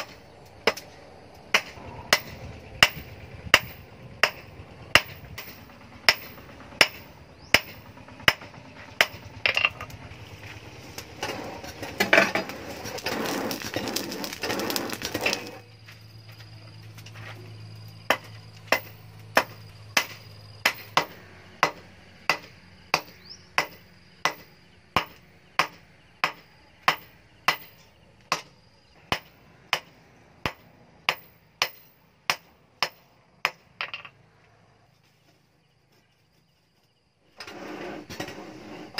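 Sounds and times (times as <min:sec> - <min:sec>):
hammer striking hot metal: 0:00.0 - 0:09.9, 0:18.1 - 0:28.5, 0:29.1 - 0:33.6.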